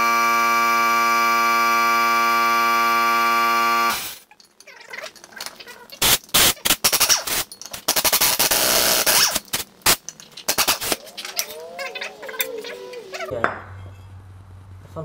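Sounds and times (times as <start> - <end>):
pneumatic impact wrench rattling: 5.4 - 11.6.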